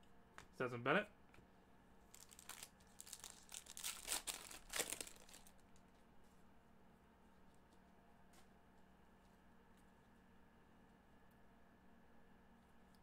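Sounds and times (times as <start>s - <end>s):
foil wrapper crinkling: 2.1s - 5.8s.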